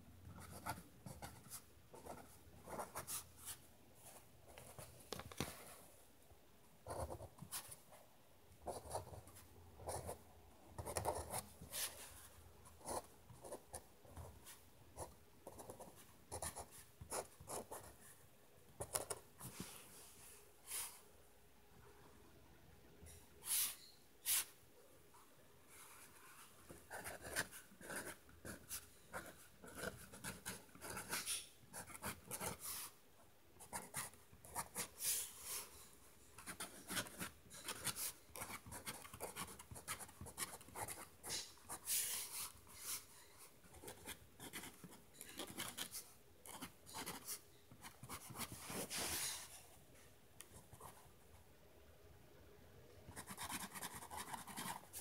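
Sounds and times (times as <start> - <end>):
pen scratching on paper: 0.4 - 3.6, 8.7 - 10.2, 10.8 - 12.1, 12.8 - 14.3, 15.4 - 17.9, 26.7 - 32.9, 36.4 - 43.0, 43.7 - 49.2, 53.2 - 55.0.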